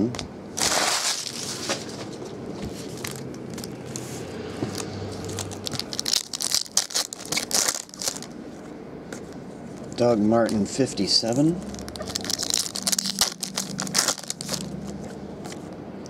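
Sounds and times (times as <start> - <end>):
foil wrapper tearing and crinkling: 0.6 - 2.0, 4.8 - 8.4, 11.3 - 15.0
sharp crackling of foil: 0.6 - 2.2, 5.1 - 8.4, 9.8 - 15.0.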